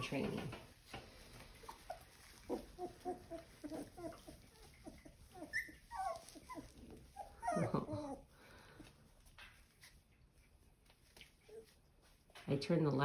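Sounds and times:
puppies whimpering: 0:01.2 - 0:08.8.

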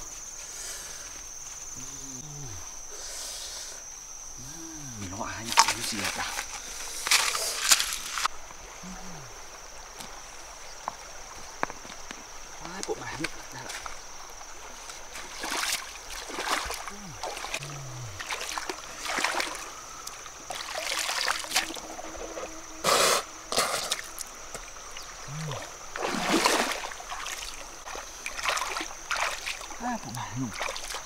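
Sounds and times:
feet splashing through shallow water: 0:09.4 - 0:22.3, 0:23.5 - 0:31.0.

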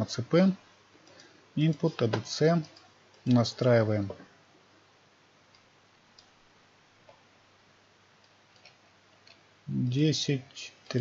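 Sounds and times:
man talking: 0:00.0 - 0:00.6, 0:01.6 - 0:04.3, 0:09.7 - 0:11.0
computer mouse and keyboard clicks: 0:01.0 - 0:03.7, 0:05.5 - 0:06.4, 0:08.2 - 0:09.5.

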